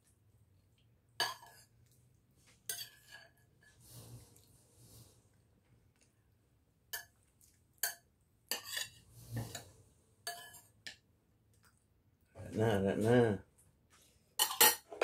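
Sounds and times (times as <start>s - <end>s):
metal spoon clinking on ceramic: 10.3s - 10.6s.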